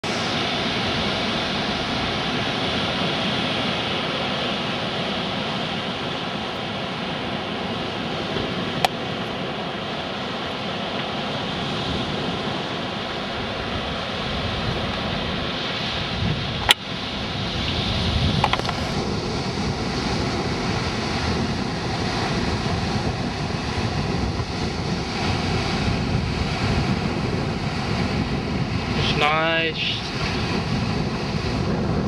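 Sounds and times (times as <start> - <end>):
surf breaking: 0.0 - 32.0
wind rushing: 11.5 - 32.0.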